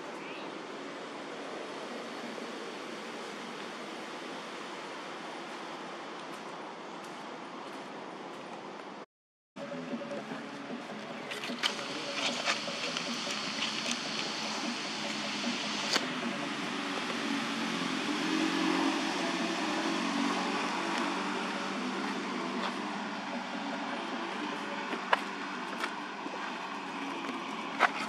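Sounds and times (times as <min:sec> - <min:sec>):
steady rushing noise: 0:09.6 - 0:28.0.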